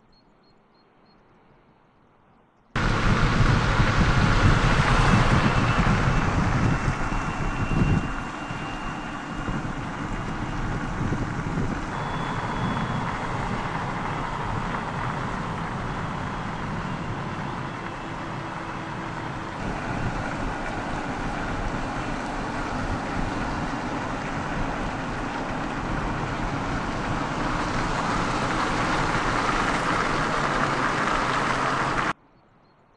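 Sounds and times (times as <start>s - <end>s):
tyre and wind noise: 2.8s - 32.1s.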